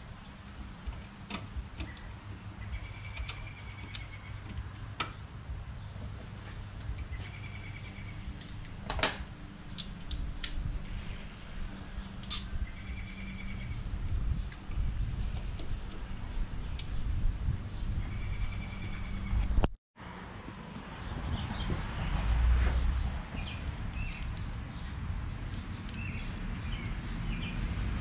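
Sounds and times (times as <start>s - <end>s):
fittings and hoses clicking: 23.6s - 24.7s, 25.5s - 28.0s.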